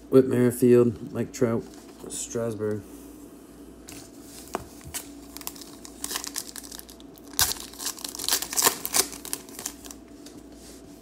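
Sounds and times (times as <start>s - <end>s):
foil wrapper tearing and crinkling: 4.9s - 10.0s.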